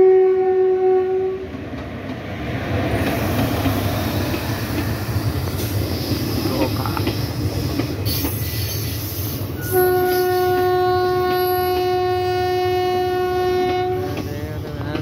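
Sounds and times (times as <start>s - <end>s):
train horn blast: 0.0s - 1.6s, 9.6s - 14.4s
train coaches rumbling past: 0.0s - 15.0s.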